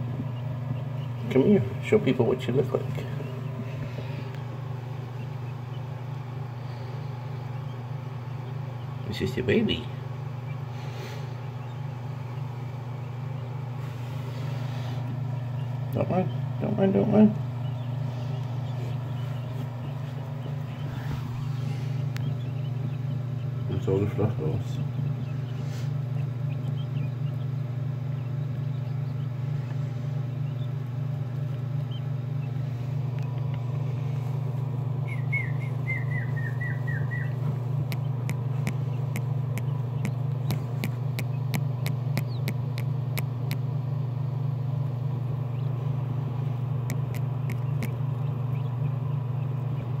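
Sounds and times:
quail chicks peeping: 0.0s - 50.0s
steady low hum: 0.0s - 50.0s
sharp little ticks: 37.8s - 43.7s, 46.8s - 48.3s.

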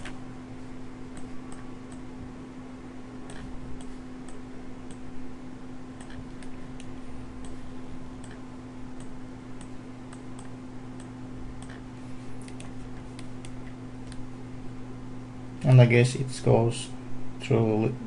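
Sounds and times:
low electrical hum: 0.0s - 18.0s
computer mouse clicking: 3.3s - 5.1s, 6.0s - 7.6s, 9.0s - 11.8s, 12.4s - 14.2s.

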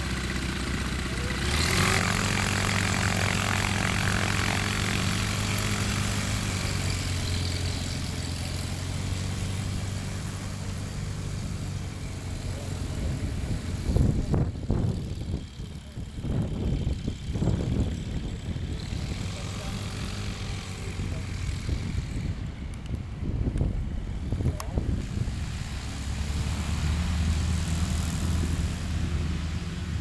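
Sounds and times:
light aircraft engine and propeller: 0.0s - 30.0s.

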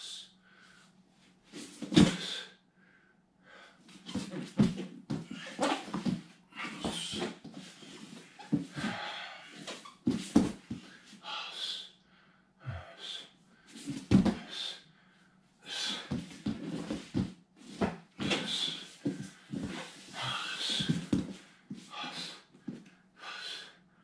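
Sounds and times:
man breathing hard: 2.0s - 4.3s, 8.4s - 9.8s, 10.6s - 17.0s, 18.2s - 24.0s
thuds and scuffs on foam mats: 4.0s - 8.9s, 10.0s - 11.0s, 16.1s - 20.1s, 20.8s - 21.8s.

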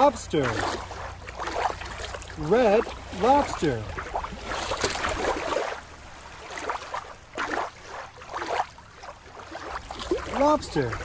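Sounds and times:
water sloshing and splashing: 0.0s - 11.0s.

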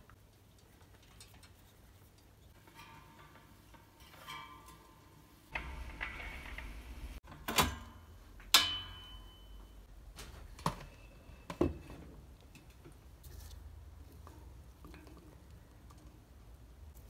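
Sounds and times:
thin metallic ringing: 8.5s - 9.9s.

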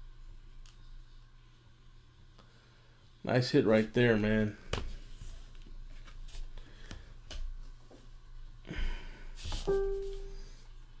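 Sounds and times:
piano-like note: 9.7s - 10.6s.

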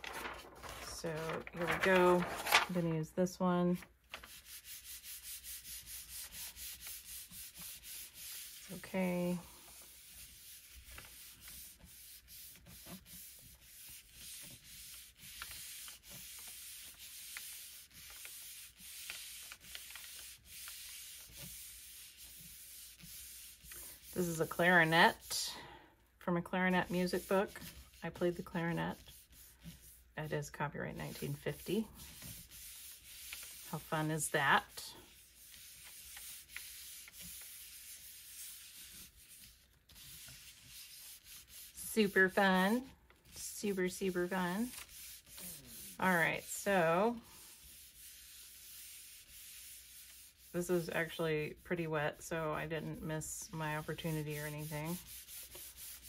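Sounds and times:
palms rubbing paper: 0.0s - 2.9s, 3.8s - 25.4s, 26.7s - 51.9s, 52.9s - 56.0s.

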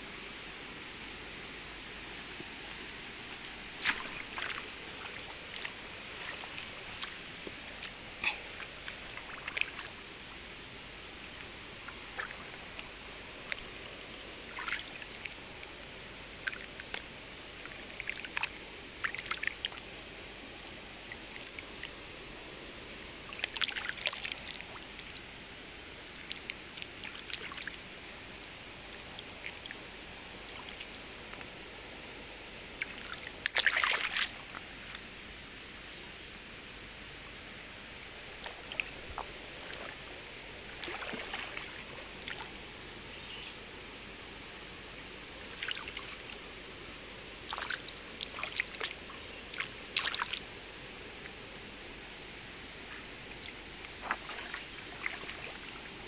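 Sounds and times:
steady background hiss: 0.0s - 56.0s
hand splashing in stream water: 3.8s - 7.2s, 40.8s - 42.4s, 53.9s - 55.7s.

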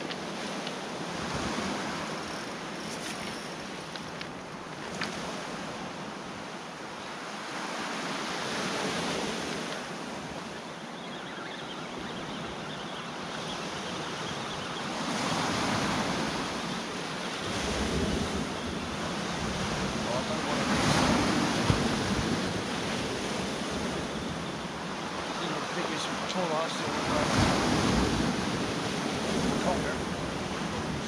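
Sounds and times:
sea waves washing onto shore: 0.0s - 10.9s, 12.0s - 31.0s
wind buffeting microphone: 11.9s - 26.0s, 27.0s - 31.0s.

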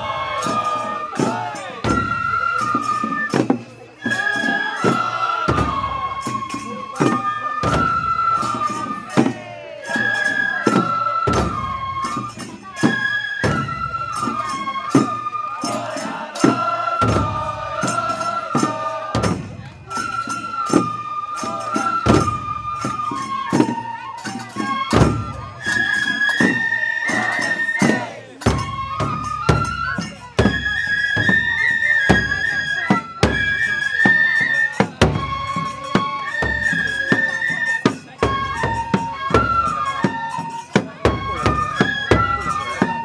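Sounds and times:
bamboo flute melody: 0.0s - 43.0s
taiko drum strikes: 16.5s - 19.6s.

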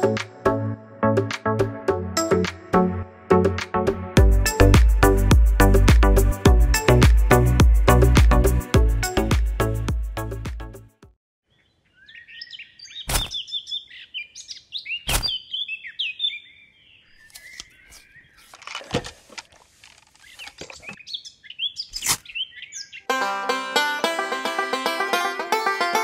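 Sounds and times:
small birds chirping: 11.5s - 18.9s, 19.5s - 23.1s
banjo music: 23.1s - 26.0s.

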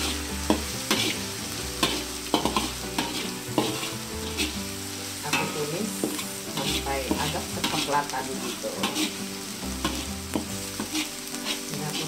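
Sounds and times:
food sizzling in hot oil: 0.0s - 12.0s
spatula scraping a wok: 0.0s - 12.0s.

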